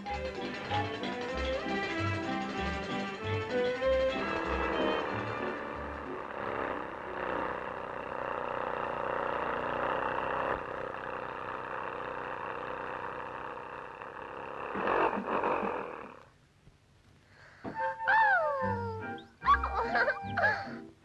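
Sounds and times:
cartoon car engine hum: 0.0s - 16.4s
engine sputtering pulses: 0.0s - 16.4s.

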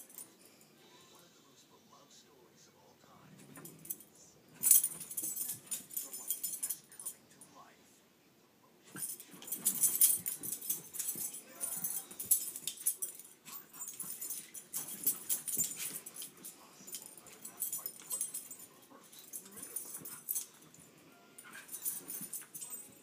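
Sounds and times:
dogs play-fighting: 3.4s - 6.9s, 8.8s - 23.0s.

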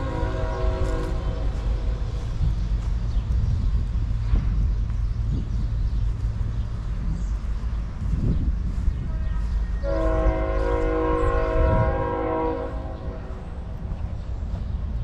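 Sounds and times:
train air horn blast: 0.0s - 2.1s, 9.8s - 13.6s.

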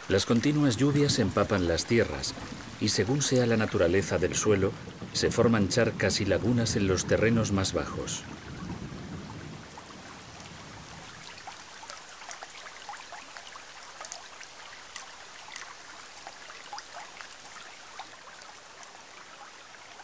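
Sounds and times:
rain pattering on pond water: 0.0s - 20.0s.

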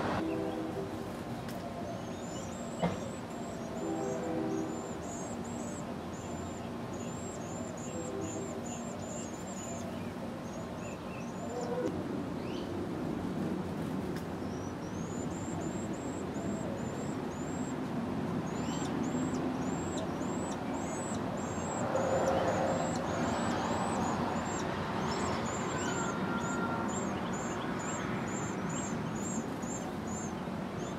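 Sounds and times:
nestlings chirping: 4.7s - 11.9s, 14.4s - 30.9s.

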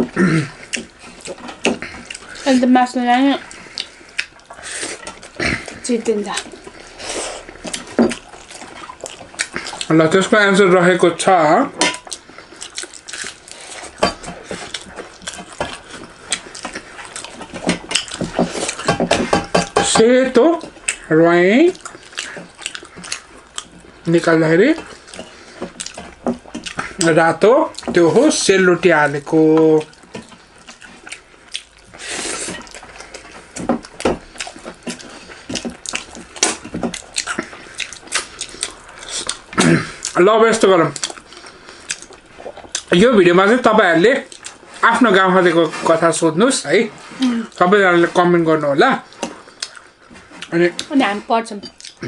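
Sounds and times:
crunching and chewing: 0.0s - 2.7s, 3.4s - 52.0s
lip smacks: 29.8s - 40.2s, 40.9s - 42.9s, 49.1s - 50.9s, 51.8s - 52.0s.

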